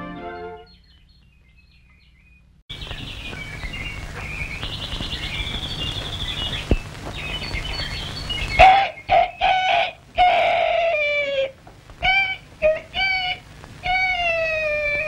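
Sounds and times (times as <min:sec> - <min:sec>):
orchestral music: 0:00.0 - 0:00.7
cartoon birdsong chirps and trills: 0:00.1 - 0:15.0
film soundtrack hiss: 0:02.7 - 0:15.0.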